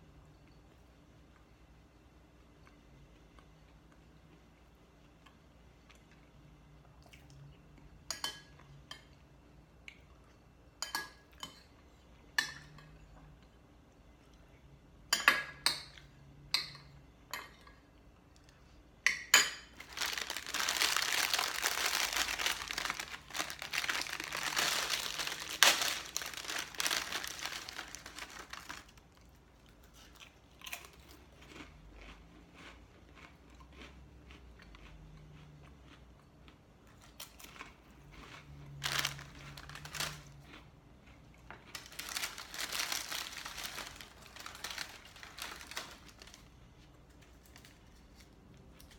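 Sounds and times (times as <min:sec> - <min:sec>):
plastic packaging crinkling: 0:19.8 - 0:29.3, 0:38.8 - 0:40.4, 0:41.7 - 0:46.6.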